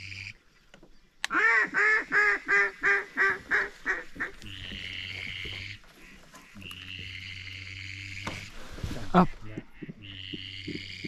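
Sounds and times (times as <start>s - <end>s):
duck quacking: 1.3s - 8.4s, 9.1s - 11.0s
steady hum: 2.4s - 11.0s.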